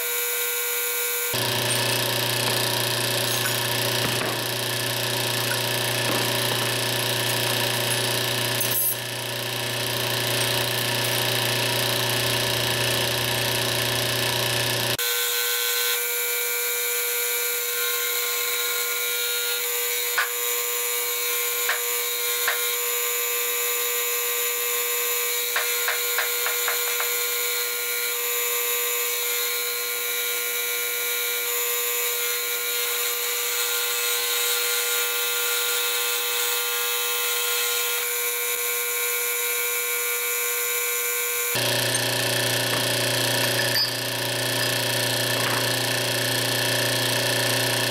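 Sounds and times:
shop machinery humming: 1.3s - 15.1s, 41.5s - 47.9s.

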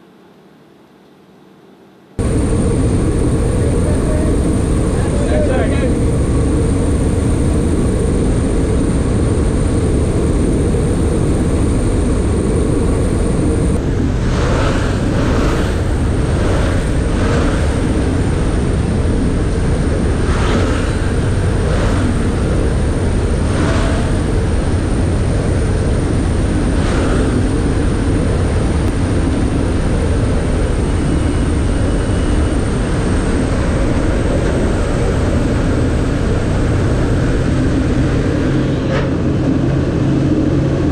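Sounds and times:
turboprop engines droning: 0.0s - 40.9s
rushing slipstream: 8.9s - 28.8s.

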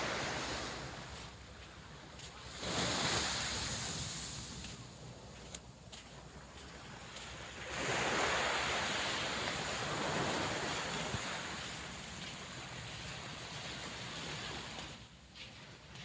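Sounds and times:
wave breaking on beach: 0.0s - 1.1s, 2.5s - 4.7s, 7.6s - 15.0s.

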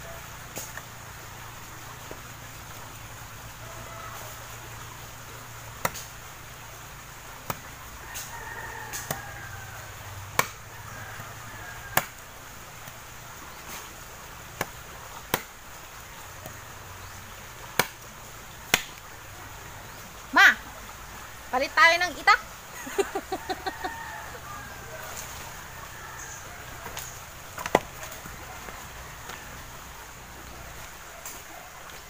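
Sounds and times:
machete chopping wood: 5.8s - 6.2s, 7.4s - 8.3s, 8.9s - 9.2s, 10.3s - 10.6s, 11.9s - 12.2s, 14.5s - 15.6s, 17.6s - 19.0s, 26.9s - 28.3s.

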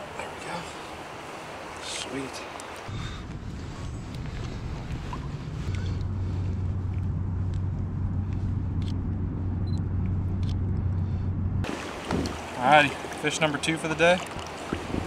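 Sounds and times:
low rumble: 2.9s - 11.7s
low hum: 2.9s - 13.2s.

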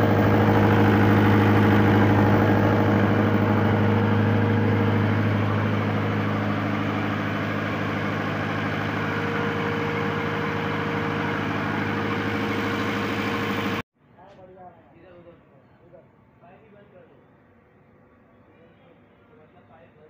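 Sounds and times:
diesel generator running: 0.0s - 13.8s.

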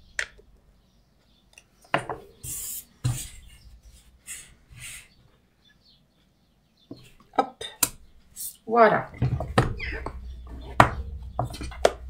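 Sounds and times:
stamp knocking and thumping: 9.2s - 12.0s.

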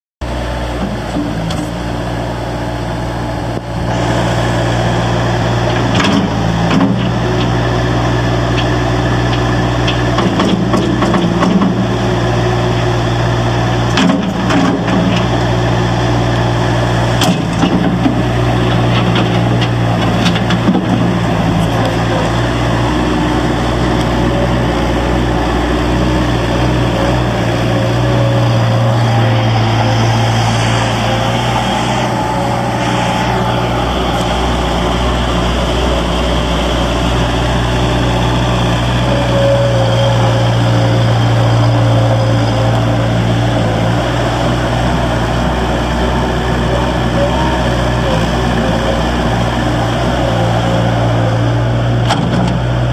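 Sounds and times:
diesel engine running: 0.2s - 52.9s
loader clanks and knocks: 0.7s - 1.8s, 5.6s - 12.9s, 13.8s - 15.6s, 17.1s - 28.8s, 46.7s - 52.9s.

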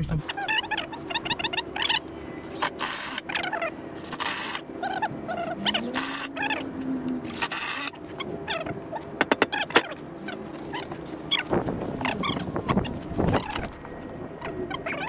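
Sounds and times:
squeaks: 0.2s - 6.7s, 7.3s - 15.0s
sharp knocks and clicks: 9.2s - 9.9s.

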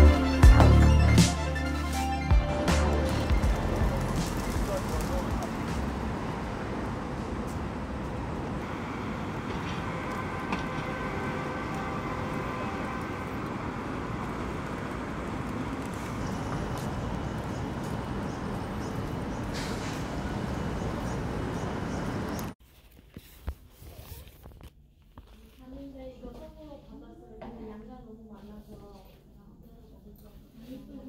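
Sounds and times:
traffic rumble: 0.0s - 22.6s.

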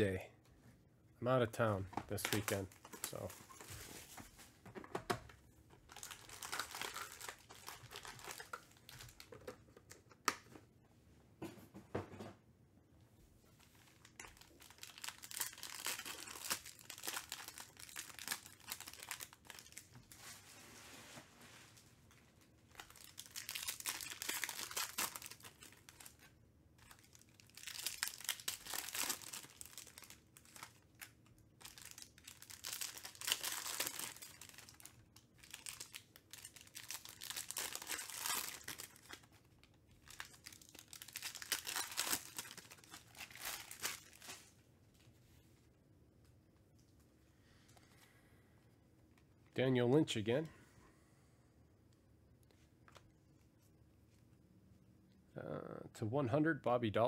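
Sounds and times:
foil wrappers crinkling and tearing: 2.1s - 4.0s, 5.9s - 9.3s, 13.7s - 20.4s, 22.7s - 44.5s.

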